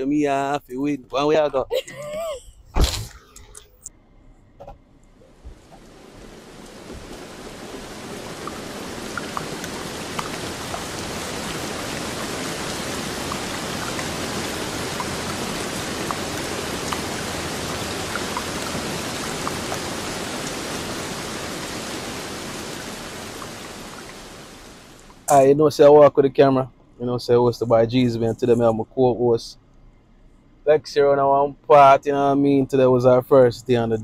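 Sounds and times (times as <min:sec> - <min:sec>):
rain on a car windshield: 0:05.3 - 0:25.4.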